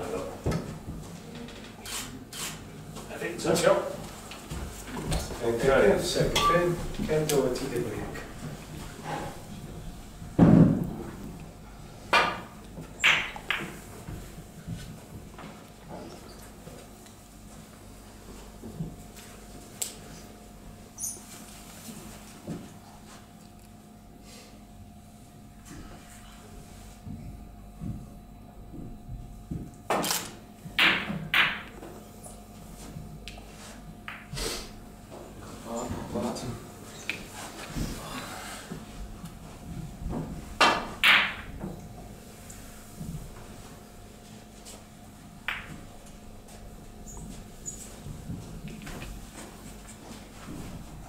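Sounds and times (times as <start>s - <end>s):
cue striking ball knock: 12.1s - 13.8s
snooker balls clacking: 12.1s - 13.8s, 30.8s - 31.8s, 40.6s - 41.8s, 45.5s - 45.9s
snooker balls clicking: 12.2s - 13.8s, 45.5s - 45.9s.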